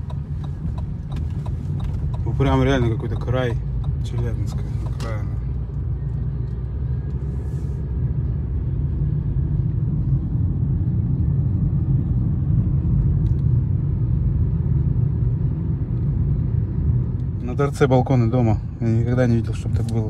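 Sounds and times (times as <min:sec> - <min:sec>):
car engine and tyres rumbling: 0:00.0 - 0:20.0.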